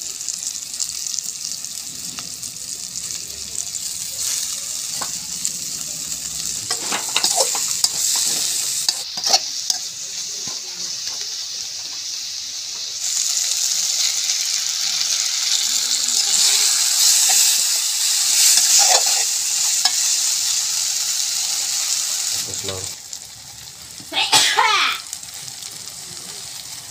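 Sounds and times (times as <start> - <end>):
vegetables sizzling in oil: 0.0 - 26.9
metal spatula scraping a wok: 6.5 - 9.9, 18.3 - 20.2.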